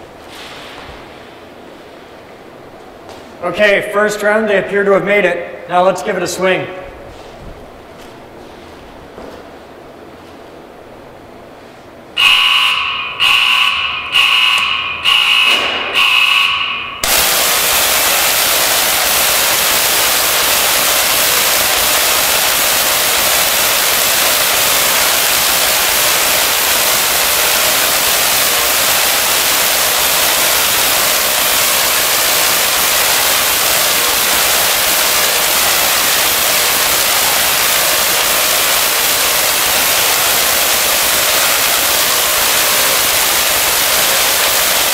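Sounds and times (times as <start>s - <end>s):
loud warning beeps: 12.2s - 17.1s
electric arc hissing: 17.0s - 44.9s.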